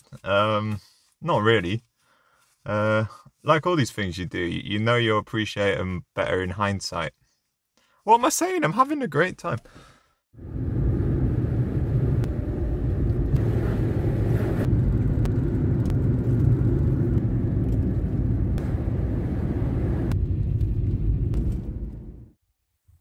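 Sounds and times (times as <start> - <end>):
car engine and tyre road noise: 10.4 - 22.4.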